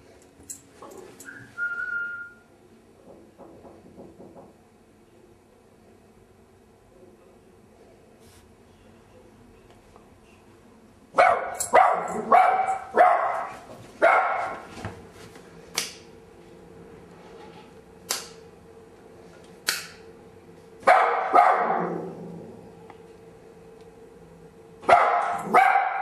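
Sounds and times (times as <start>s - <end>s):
small dog barking: 11.2s - 14.6s, 20.8s - 22.0s, 24.8s - 26.0s.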